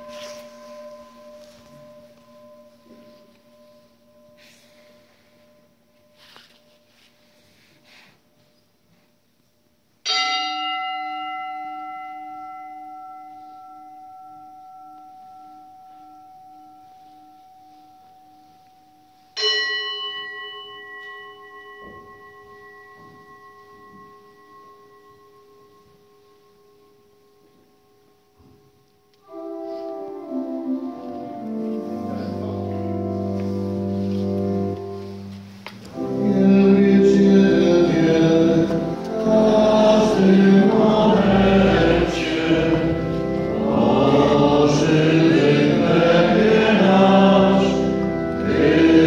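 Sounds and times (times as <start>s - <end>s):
church organ chords: 0.0s - 8.5s, 29.2s - 49.0s.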